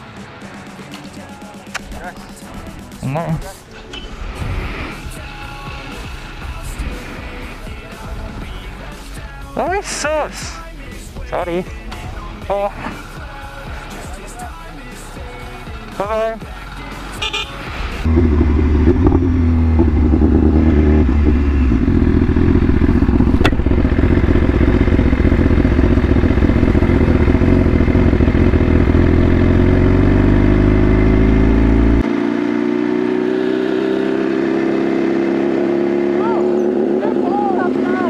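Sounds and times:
motorcycle engine rumbling: 0:16.0 - 0:38.0.

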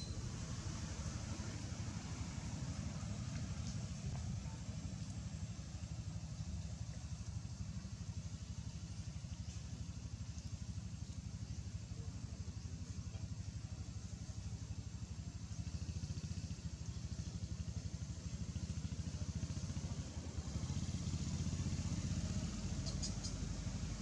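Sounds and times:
pulsing motor rumble: 0:00.0 - 0:24.0
faint high clicks: 0:22.7 - 0:23.5.

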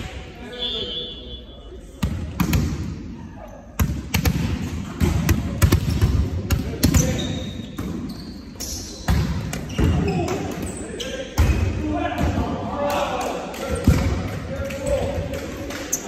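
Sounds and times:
trainers squeaking on court: 0:06.8 - 0:11.8.

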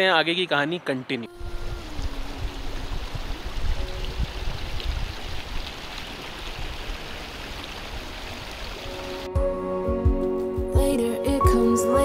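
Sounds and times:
stream babbling over stones: 0:01.4 - 0:09.3.

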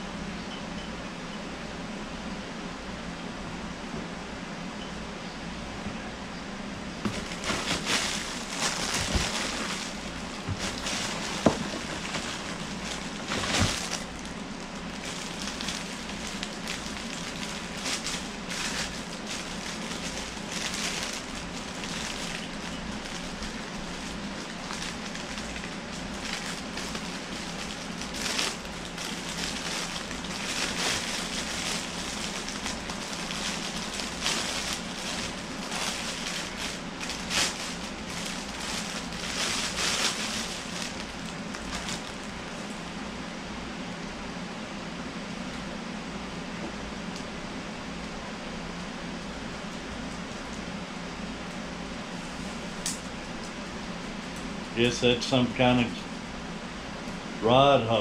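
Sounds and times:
plastic packaging crinkling: 0:07.0 - 0:42.8.

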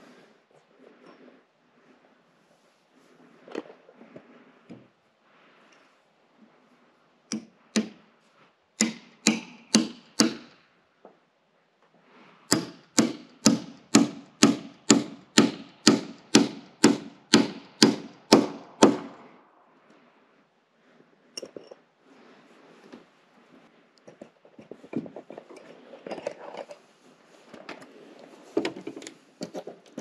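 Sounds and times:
hammer driving nail into wood: 0:07.3 - 0:08.0, 0:08.8 - 0:10.6, 0:12.5 - 0:19.2.

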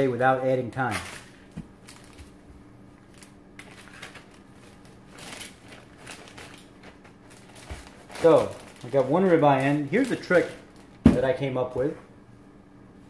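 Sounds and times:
faint steady hum: 0:00.0 - 0:13.0
plastic bag crinkling: 0:00.8 - 0:02.4, 0:03.0 - 0:11.3.

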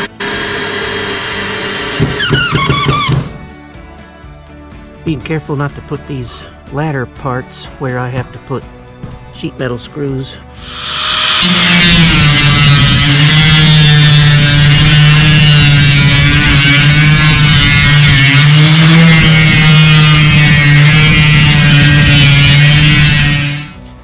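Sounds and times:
angle grinder cutting metal: 0:00.0 - 0:03.4, 0:10.6 - 0:24.0.

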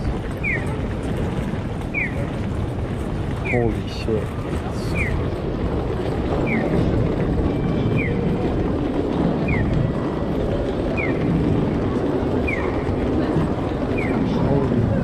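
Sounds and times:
busy street rumble: 0:00.0 - 0:15.0
crossing signal electronic chirp: 0:01.9 - 0:02.2.

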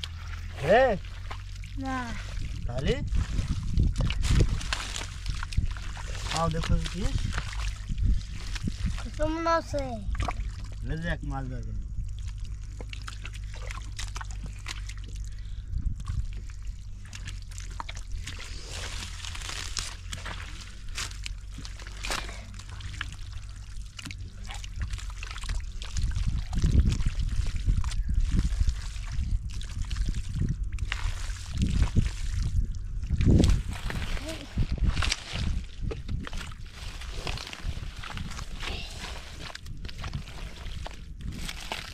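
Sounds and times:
shallow water splashing: 0:00.0 - 0:41.9.

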